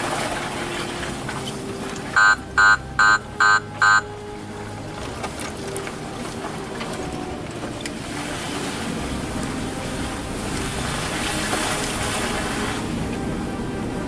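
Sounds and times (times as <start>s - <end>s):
wind and rolling noise: 0.0s - 14.0s.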